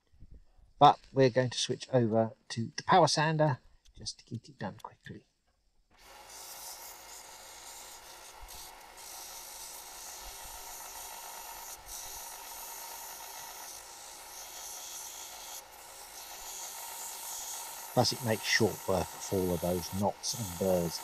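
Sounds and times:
belt sander grinding wood: 6.0 - 21.0
sander motor hum: 6.0 - 21.0.

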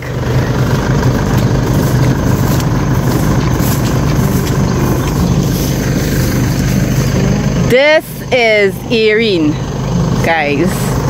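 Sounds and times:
engine idling: 0.0 - 11.0.

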